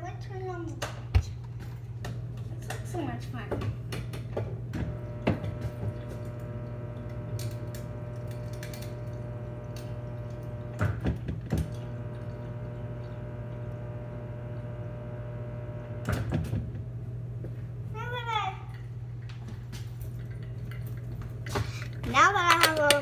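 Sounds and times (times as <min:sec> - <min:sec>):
dispenser valve hum: 0:01.7 - 0:23.0
water running into bottle: 0:04.9 - 0:16.0.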